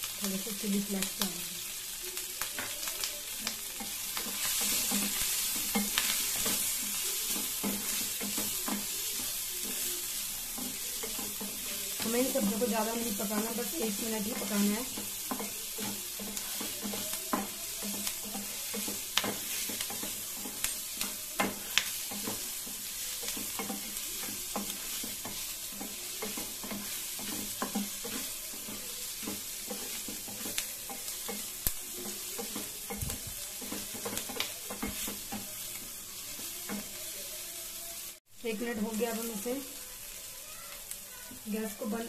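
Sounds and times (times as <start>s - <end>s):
onion sizzling in oil: 0.0s - 42.0s.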